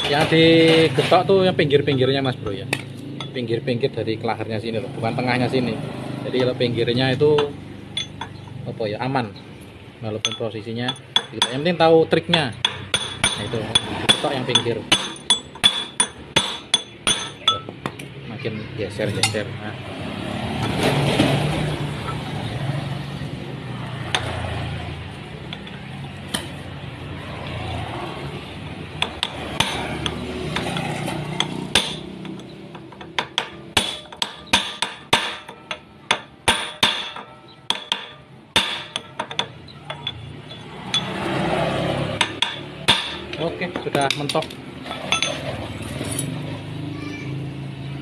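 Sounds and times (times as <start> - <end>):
hammer tapping on metal pipe: 42.2 - 44.4.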